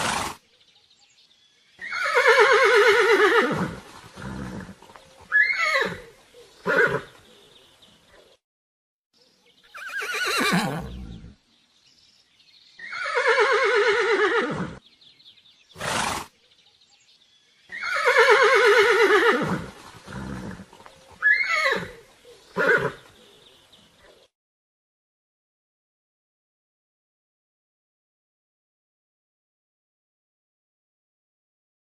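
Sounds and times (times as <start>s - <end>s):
horse neighing: 1.8s - 7.2s, 9.7s - 11.4s, 12.8s - 14.8s, 15.8s - 16.3s, 17.7s - 22.0s, 22.6s - 23.0s.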